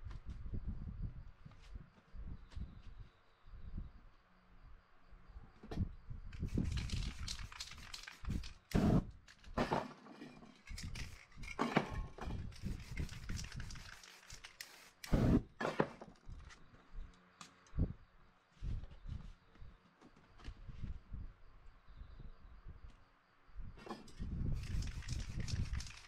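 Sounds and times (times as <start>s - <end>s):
spray can hissing: 6.4s - 9.0s, 12.5s - 15.4s, 24.6s - 26.0s.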